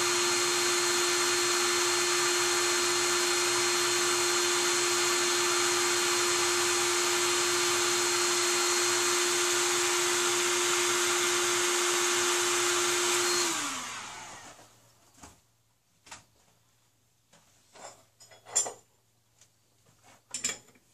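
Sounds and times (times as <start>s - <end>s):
power tool whining: 0.0s - 14.7s.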